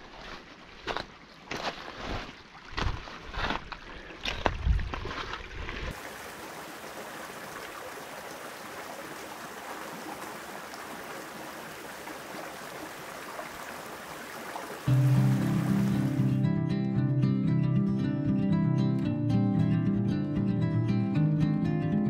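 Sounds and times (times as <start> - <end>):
creek flowing over rocks: 5.2 - 16.4
music: 14.9 - 22.0.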